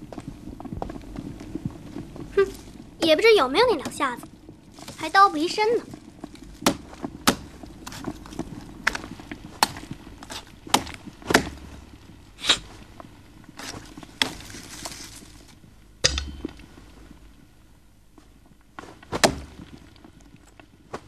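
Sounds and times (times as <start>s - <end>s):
knife chopping through ribs and meat: 6.6s - 8.0s.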